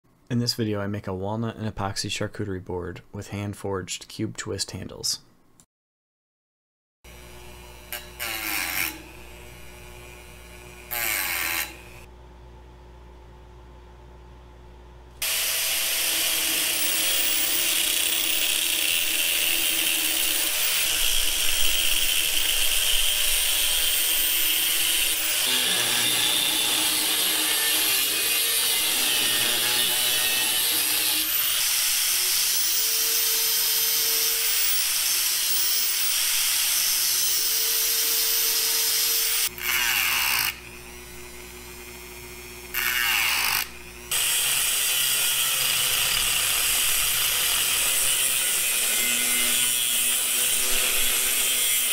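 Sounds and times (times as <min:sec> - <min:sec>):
angle grinder cutting steel: 0:07.1 - 0:12.1, 0:15.2 - 0:51.9
rotary tool on metal: 0:07.9 - 0:09.2, 0:10.8 - 0:12.1, 0:15.2 - 0:40.6, 0:42.7 - 0:51.9.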